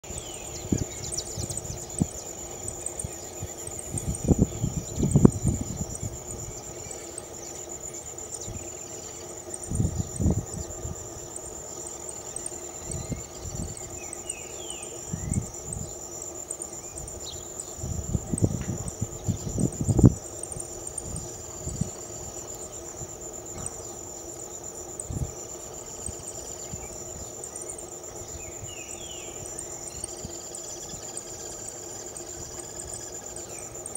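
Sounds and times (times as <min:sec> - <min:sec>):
insects chirring: 0:00.0 - 0:33.9.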